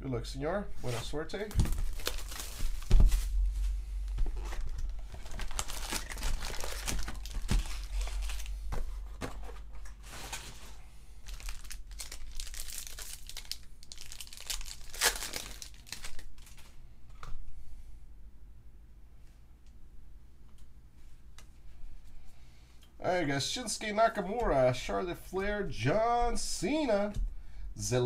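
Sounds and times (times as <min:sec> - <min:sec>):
foil packs crinkling: 0:00.9 - 0:03.6, 0:04.2 - 0:16.7
foil pack tearing open: 0:01.6 - 0:03.2, 0:04.5 - 0:08.5, 0:11.2 - 0:16.6.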